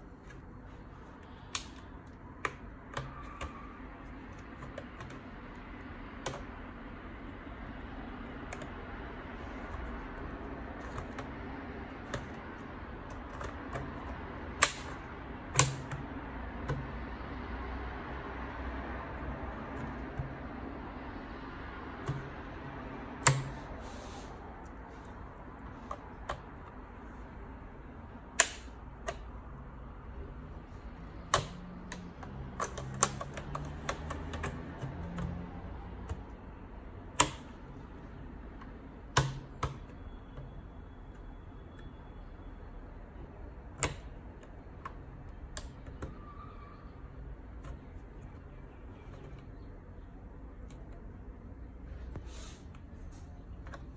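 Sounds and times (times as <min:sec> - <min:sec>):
steady low background hum: 0:00.0 - 0:53.9
plastic clips snapping: 0:14.5 - 0:15.0, 0:28.3 - 0:29.3.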